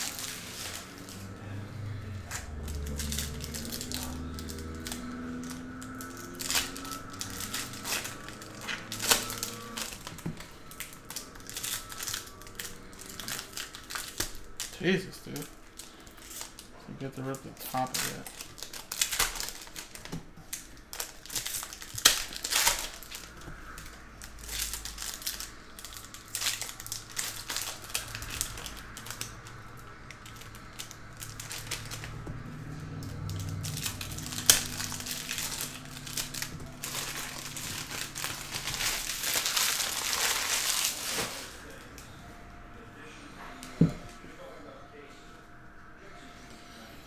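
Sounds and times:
foil wrappers tearing and crinkling: 0:00.0 - 0:42.0.

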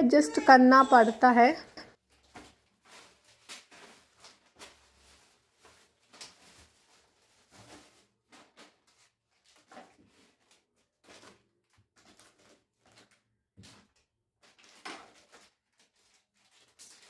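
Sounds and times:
plastic bags rustling and crinkling: 0:02.1 - 0:11.4, 0:14.4 - 0:17.0.

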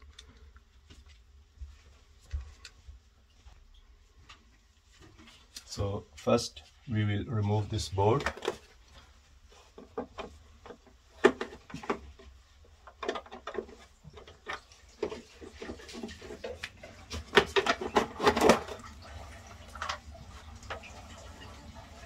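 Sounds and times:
plastic cover clicks and rattles: 0:08.2 - 0:08.7, 0:12.8 - 0:15.1, 0:16.5 - 0:18.8.

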